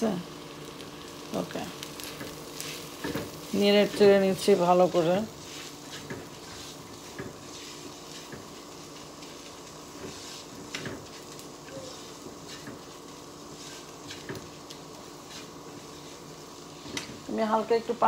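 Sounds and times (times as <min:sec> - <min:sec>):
onions sizzling in a wok: 0:00.0 - 0:18.0
spatula scraping and tapping pan: 0:02.0 - 0:04.3, 0:05.4 - 0:11.5, 0:12.2 - 0:17.2.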